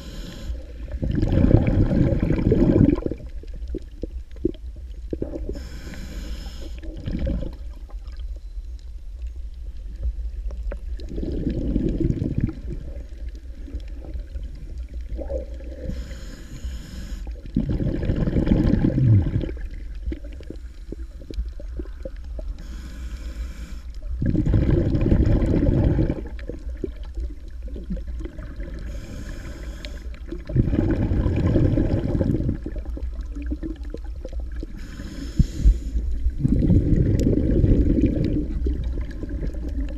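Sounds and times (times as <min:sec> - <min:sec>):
breathing through snorkel tube: 0:00.0 - 0:03.0, 0:05.2 - 0:07.6, 0:15.2 - 0:19.5, 0:22.6 - 0:26.3, 0:28.7 - 0:32.6, 0:34.7 - 0:38.4
low rumble of water: 0:00.0 - 0:39.9.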